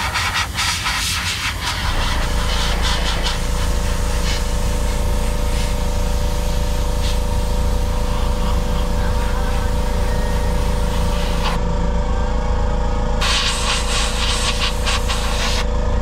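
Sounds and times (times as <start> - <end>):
airbrush spray hissing: 0.0 - 11.6, 13.2 - 15.6
air compressor humming: 0.0 - 16.0.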